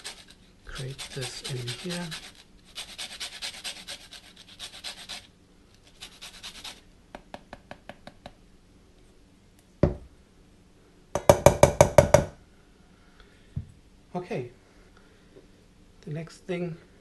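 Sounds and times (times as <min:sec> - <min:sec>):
rind grated on a grater: 0:00.0 - 0:06.8.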